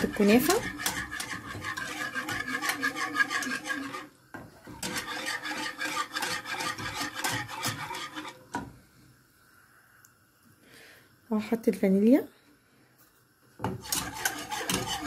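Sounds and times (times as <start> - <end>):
whisk scraping a saucepan: 0.0 - 8.7, 13.6 - 15.0.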